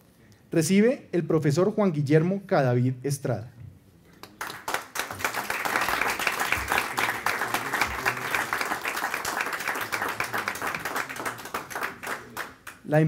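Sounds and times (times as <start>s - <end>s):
audience applauding: 4.2s - 12.9s.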